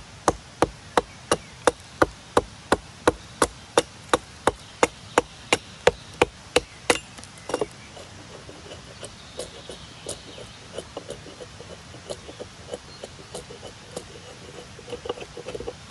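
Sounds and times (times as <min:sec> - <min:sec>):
hatchet chopping a log: 0:00.2 - 0:07.8.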